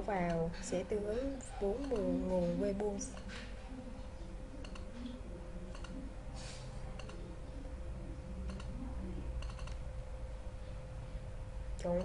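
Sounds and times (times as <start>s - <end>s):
faint steady hum: 0.0s - 12.0s
computer mouse clicking: 1.8s - 2.1s, 4.6s - 6.0s, 6.9s - 7.3s, 8.4s - 8.8s, 9.4s - 9.8s.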